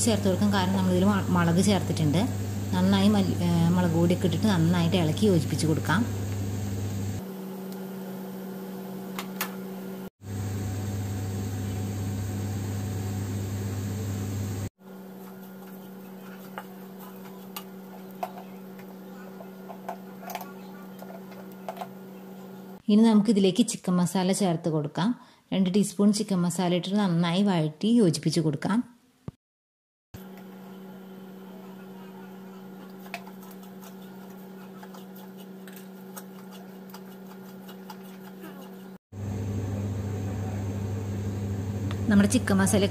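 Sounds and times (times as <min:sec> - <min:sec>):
appliance motor hum: 0:00.0 - 0:22.8, 0:30.2 - 0:42.9
spatula scraping pan: 0:15.1 - 0:21.9, 0:32.3 - 0:39.0
wooden spatula scraping pan: 0:32.8 - 0:39.0.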